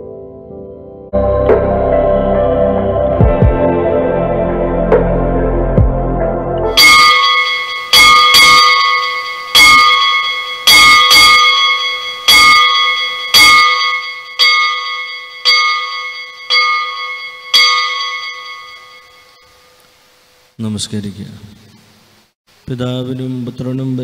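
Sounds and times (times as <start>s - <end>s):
bell ringing: 6.7s - 19.8s.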